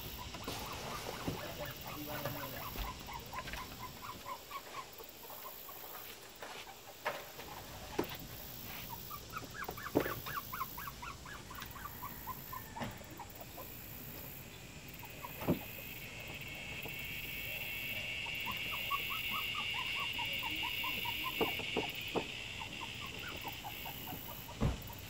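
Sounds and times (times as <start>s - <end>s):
animal squeaky chirps: 17.7s - 24.6s.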